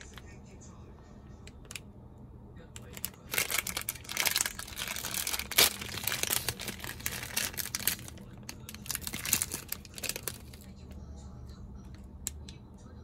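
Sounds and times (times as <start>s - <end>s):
plastic wrapper tearing and crinkling: 2.9s - 10.7s.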